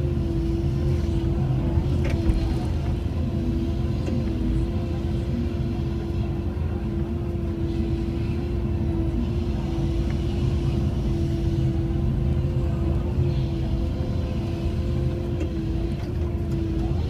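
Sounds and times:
excavator diesel engine rumbling: 0.0s - 17.0s.

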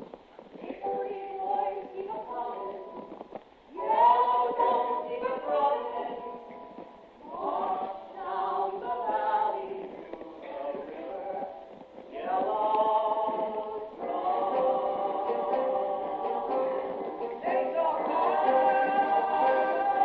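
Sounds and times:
cast singing show tune: 3.7s - 20.0s.

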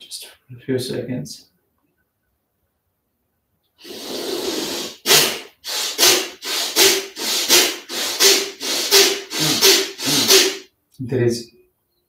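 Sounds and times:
forceful breathing through nose: 3.8s - 10.7s.

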